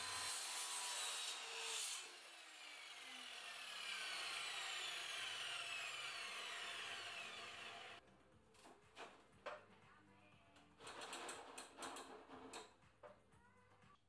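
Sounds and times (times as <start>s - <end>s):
mitre saw cutting wood: 0.0s - 8.0s
saw blade winding down whine: 2.0s - 8.0s.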